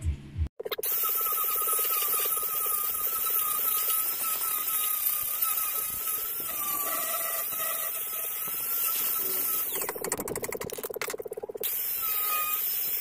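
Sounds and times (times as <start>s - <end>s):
angle grinder on steel: 0.9s - 10.0s.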